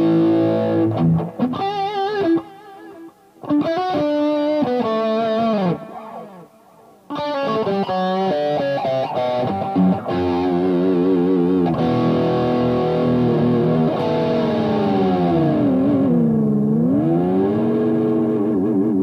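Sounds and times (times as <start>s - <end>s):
electric guitar lead: 0.0s - 19.0s.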